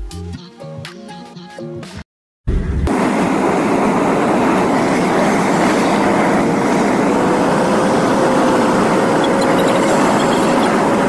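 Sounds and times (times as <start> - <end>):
car road and tyre noise: 2.9 - 11.0.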